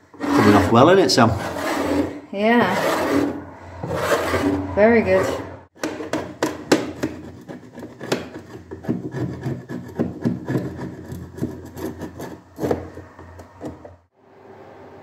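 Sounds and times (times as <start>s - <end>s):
scraper scraping paint off wood: 0.0s - 5.5s, 6.9s - 12.9s.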